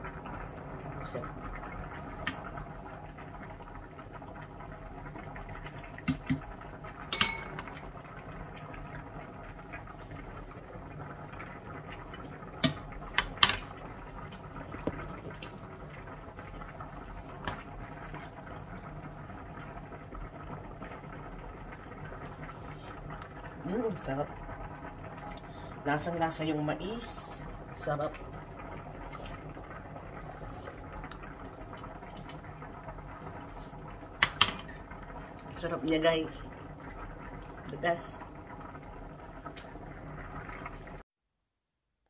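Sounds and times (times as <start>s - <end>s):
pot simmering: 0.0s - 41.0s
ladle clinking against pot: 7.1s - 7.7s.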